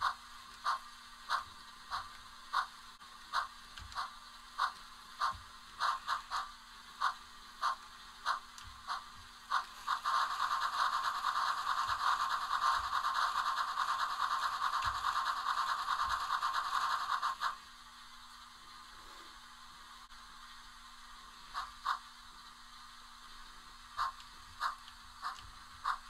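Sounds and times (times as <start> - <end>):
steam locomotive puffs: 0.0 - 17.6, 21.5 - 22.1, 23.9 - 26.0
steam hiss with fast flutter: 0.0 - 26.0.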